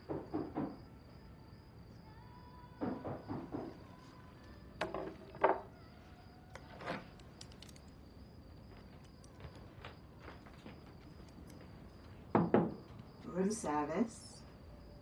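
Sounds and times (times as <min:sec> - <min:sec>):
knocks on wooden door: 0:12.3 - 0:12.8.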